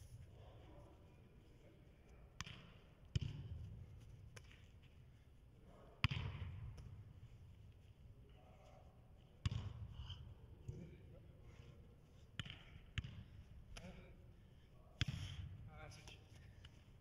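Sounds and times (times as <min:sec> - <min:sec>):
soccer ball thuds in hall: 0:02.3 - 0:05.0, 0:05.9 - 0:07.6, 0:09.3 - 0:11.1, 0:12.3 - 0:14.2, 0:15.0 - 0:15.8.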